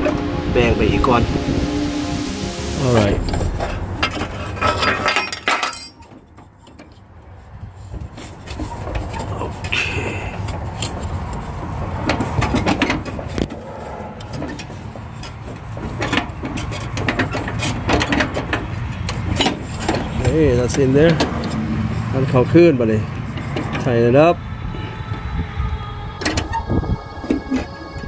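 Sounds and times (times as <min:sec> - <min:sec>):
steady low rumble: 0:00.0 - 0:06.4.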